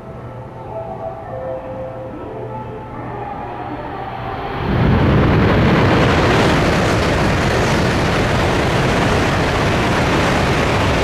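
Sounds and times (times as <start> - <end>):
train rushing past through snow: 4.0 - 11.0.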